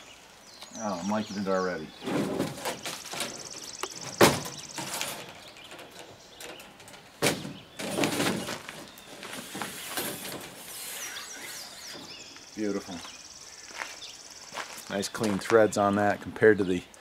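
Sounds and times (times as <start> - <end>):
metal antenna scraping in tube: 9.2 - 12.2.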